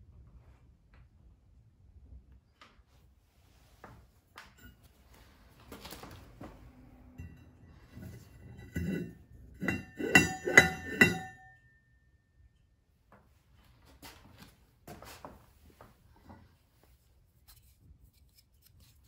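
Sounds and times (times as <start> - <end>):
metal hub clinking against wheel rim: 7.1 - 11.8.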